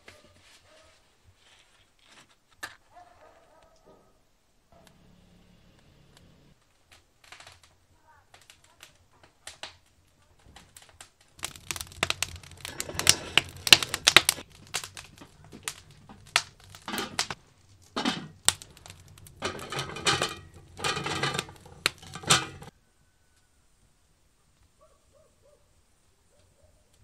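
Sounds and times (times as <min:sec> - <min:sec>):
wood fire crackling and popping: 0:06.5 - 0:22.8.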